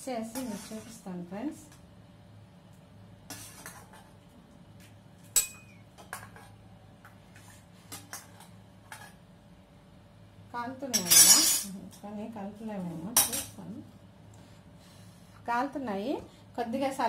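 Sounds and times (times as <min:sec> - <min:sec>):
low steady hum: 0:00.0 - 0:17.0
steel kitchenware clinking: 0:05.3 - 0:06.4, 0:10.9 - 0:11.8.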